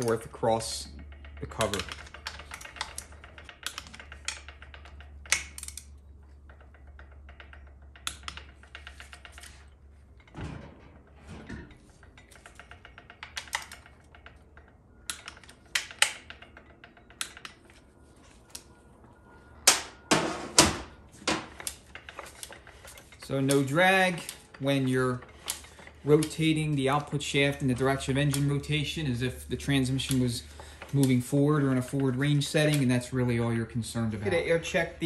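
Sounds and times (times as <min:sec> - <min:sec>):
torque wrench clicking: 0:00.0 - 0:10.3, 0:12.2 - 0:17.8, 0:21.5 - 0:33.1
sharp metallic clicks: 0:00.0 - 0:10.4, 0:12.0 - 0:18.9, 0:21.2 - 0:35.0.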